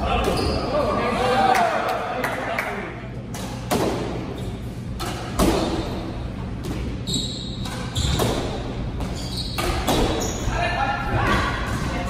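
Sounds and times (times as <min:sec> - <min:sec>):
squash ball hits echoing: 0:03.3 - 0:04.4, 0:05.0 - 0:07.0, 0:07.6 - 0:10.3
shoes squeaking on hardwood floor: 0:07.0 - 0:10.6.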